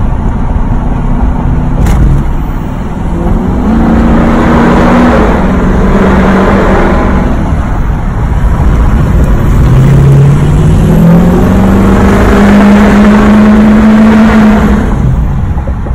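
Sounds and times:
diesel truck engine accelerating: 0.0 - 15.9.

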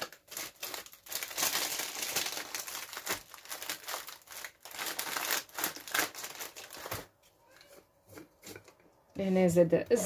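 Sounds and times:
plastic packet crinkling: 0.0 - 7.2.

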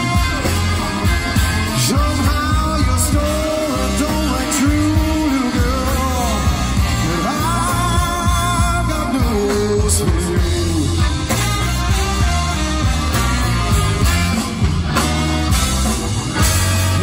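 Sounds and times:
lead singer singing: 0.0 - 11.8
brass rock band playing: 0.0 - 17.0.

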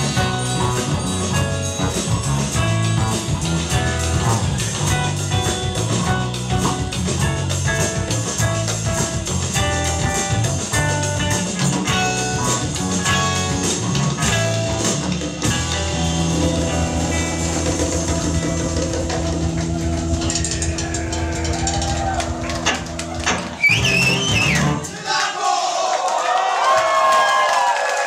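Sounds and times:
live band playing: 0.0 - 24.9.

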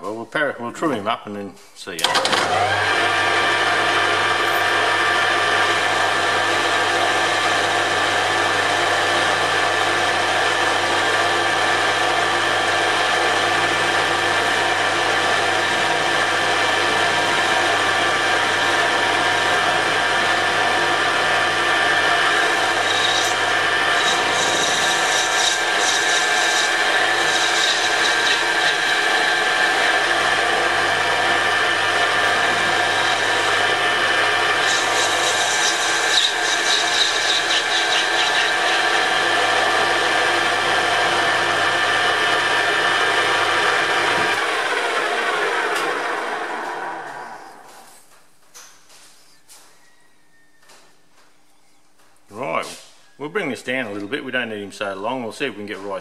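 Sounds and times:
metal lathe whine and hum: 2.0 - 48.1
scratchy cutting sound: 22.2 - 30.0, 34.5 - 38.9.

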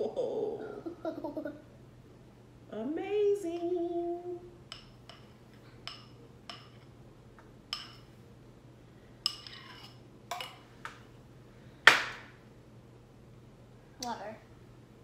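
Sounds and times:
utensil clinking against a bowl: 4.7 - 6.9, 7.7 - 8.1, 9.2 - 10.7
batter scraped from bowl: 9.4 - 10.0.

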